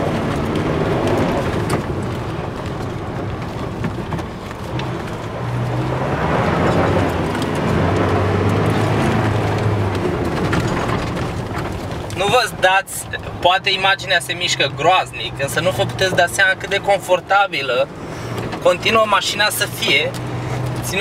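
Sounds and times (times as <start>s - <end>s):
knocks and rattles: 0.0s - 12.6s
low engine hum: 0.0s - 21.0s
tyre and road noise: 0.0s - 21.0s.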